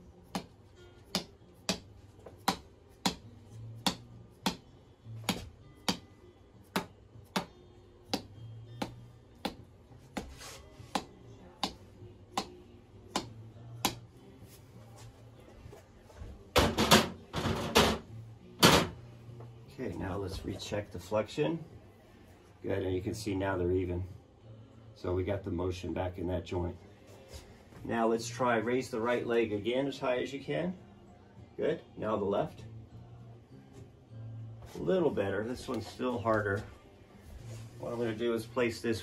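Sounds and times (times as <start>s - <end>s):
rubber mallet tapping plastic chisel: 6.7s - 7.5s.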